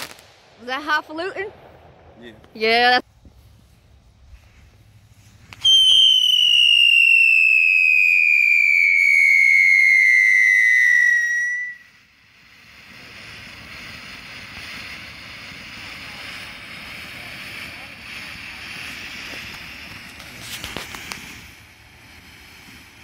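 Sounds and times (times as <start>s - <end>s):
firework fountain hissing: 0.0s - 23.0s
firework whistle falling in pitch: 5.5s - 12.1s.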